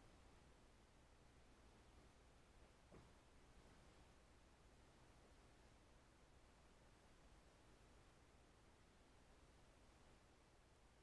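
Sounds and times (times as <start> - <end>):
faint hiss: 0.0 - 11.0.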